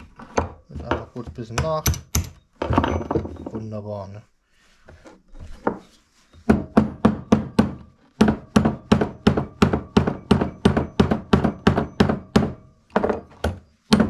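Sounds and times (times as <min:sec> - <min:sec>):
hammer blows ringing on steel: 0:06.8 - 0:12.8.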